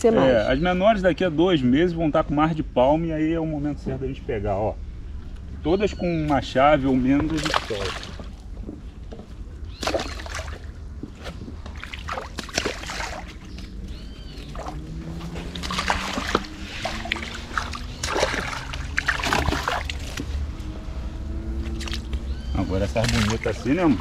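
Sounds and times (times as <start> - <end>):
fish splashing into water: 7.2 - 8.4, 9.7 - 10.8, 11.7 - 20.3, 21.6 - 24.0.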